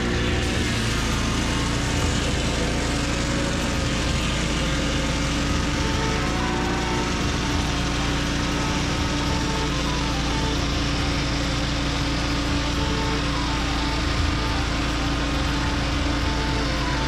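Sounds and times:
saw cutting through wood: 0.0s - 17.0s
sawmill engine running under load: 0.0s - 17.0s.

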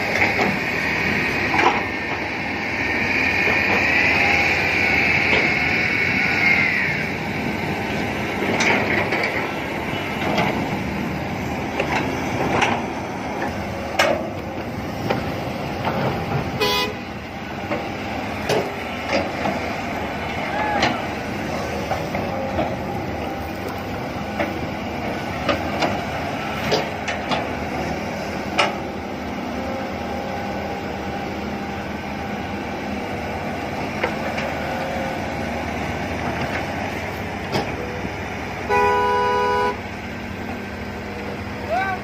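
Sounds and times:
excavator engine and hydraulics: 0.0s - 42.0s
vehicle horn: 16.6s - 17.1s, 38.6s - 39.8s.

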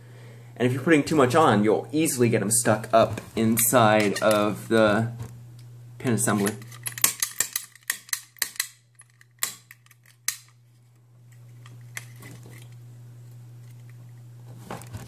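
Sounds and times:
snap gun metallic snaps: 7.0s - 10.6s.

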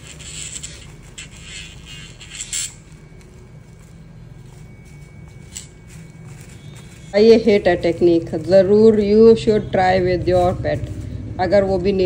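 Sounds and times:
nail file scraping dog claws: 0.0s - 2.8s.

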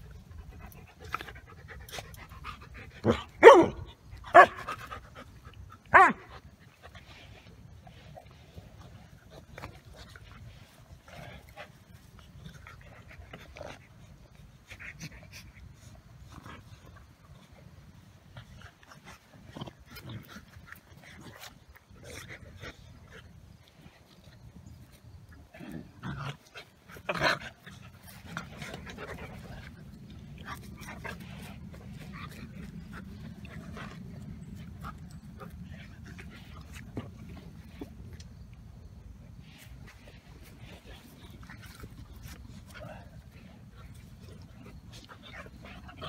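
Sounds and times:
dog noises: 0.0s - 17.6s
dogs play-fighting scuffle: 4.6s - 38.4s, 39.4s - 46.0s
steady low rumble: 27.6s - 46.0s.

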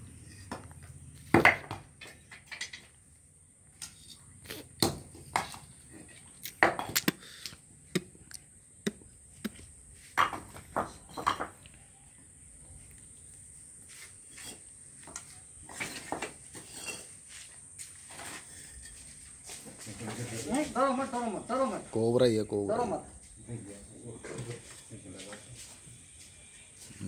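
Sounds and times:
bricks clacking together: 8.9s - 11.6s.

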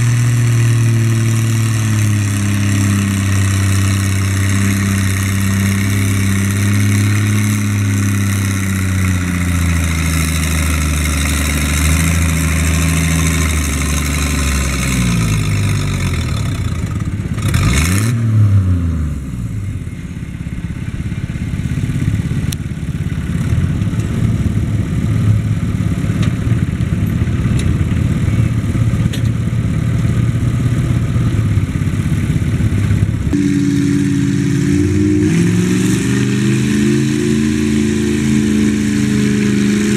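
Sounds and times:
second tractor engine: 0.0s - 39.9s
tractor engine under load: 0.0s - 39.9s.

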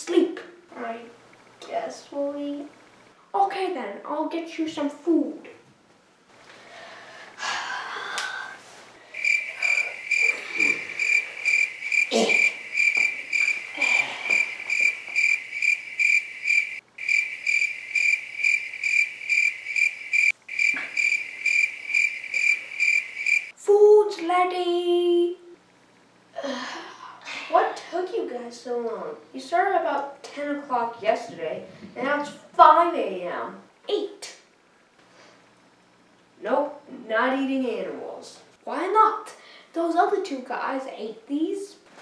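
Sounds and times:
crickets chirping: 9.0s - 23.6s
person speaking: 9.2s - 15.6s.

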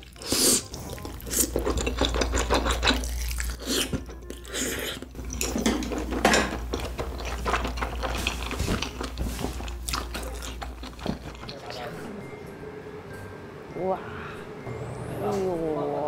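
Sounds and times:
person chewing: 0.0s - 11.8s.

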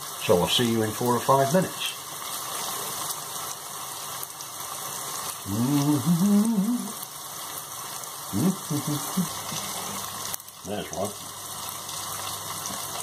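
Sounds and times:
steady hiss: 0.0s - 13.0s
man humming: 5.4s - 7.0s, 8.3s - 9.8s.

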